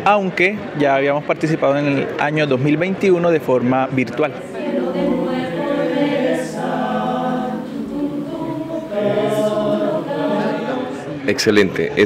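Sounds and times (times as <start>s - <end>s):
choir singing held chords: 4.3s - 11.5s.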